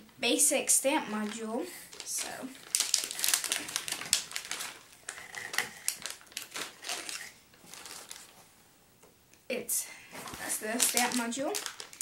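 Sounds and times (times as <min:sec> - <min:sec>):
plastic bag crinkling: 0:01.1 - 0:08.5, 0:10.1 - 0:12.0.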